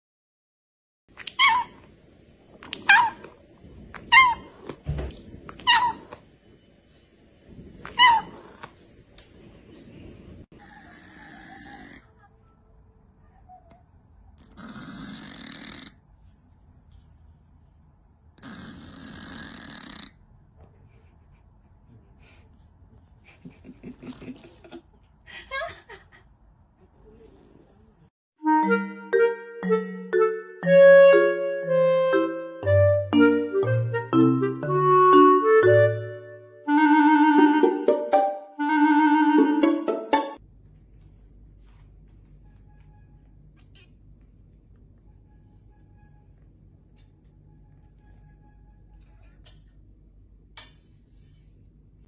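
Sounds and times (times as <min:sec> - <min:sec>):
cat meowing: 0:07.8 - 0:08.6
cat snoring: 0:10.6 - 0:12.1, 0:14.4 - 0:16.0, 0:18.4 - 0:20.2, 0:27.2 - 0:27.9.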